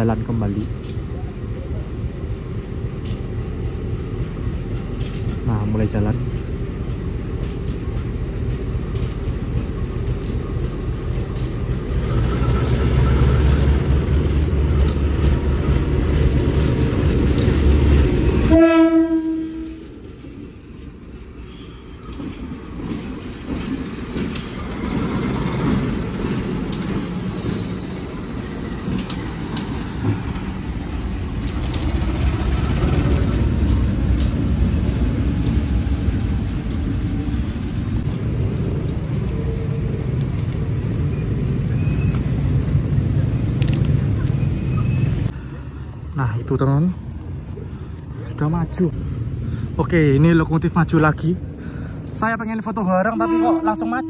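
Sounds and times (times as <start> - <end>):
diesel locomotive engine rumbling: 0.0 - 54.0
locomotive horn blast: 18.4 - 19.9, 53.0 - 54.0.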